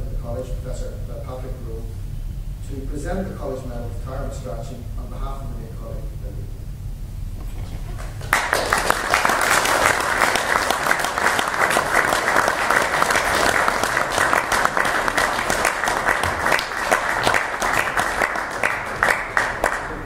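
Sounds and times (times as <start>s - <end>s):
audience applauding: 7.4s - 20.0s.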